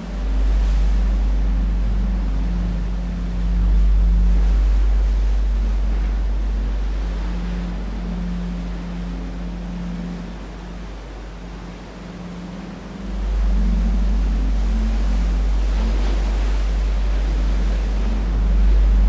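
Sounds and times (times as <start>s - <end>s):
deep electronic bass drone: 0.0s - 19.0s
quiet humming tone: 0.0s - 19.0s.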